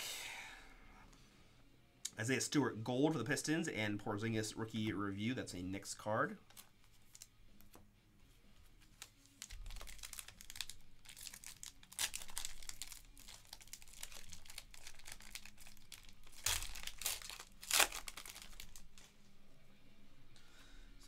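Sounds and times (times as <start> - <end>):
foil wrapper crinkling and ripping: 8.8 - 19.0.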